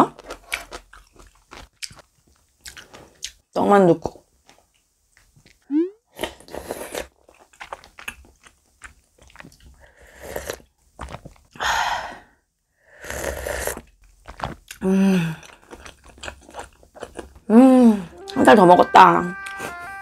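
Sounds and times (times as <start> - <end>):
chewing: 0.2 - 3.4, 6.2 - 11.5, 13.6 - 14.8, 15.4 - 17.4
person humming: 5.7 - 6.0, 17.6 - 20.0.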